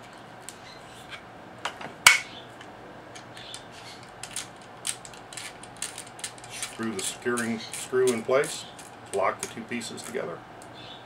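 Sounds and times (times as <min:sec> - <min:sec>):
metal parts scraping: 0:03.2 - 0:10.2
rifle parts clicking: 0:03.2 - 0:10.7.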